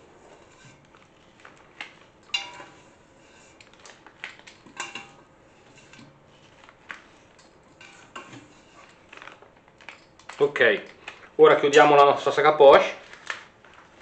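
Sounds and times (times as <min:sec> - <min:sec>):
batter scraping metal bowl: 0:00.0 - 0:04.0, 0:04.6 - 0:09.4.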